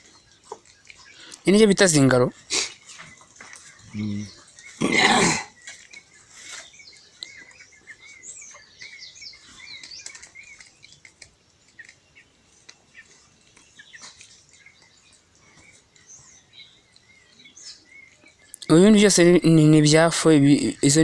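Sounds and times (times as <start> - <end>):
birds chirping: 0.0 - 21.0
hands clicking and rustling: 9.7 - 12.0.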